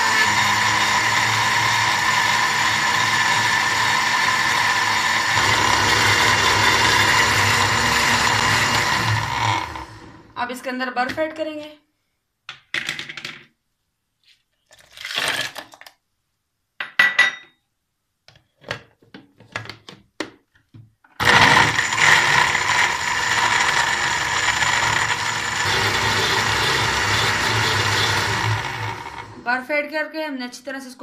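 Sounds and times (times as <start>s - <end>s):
electric blender crushing ice: 0.0s - 10.4s, 21.2s - 29.5s.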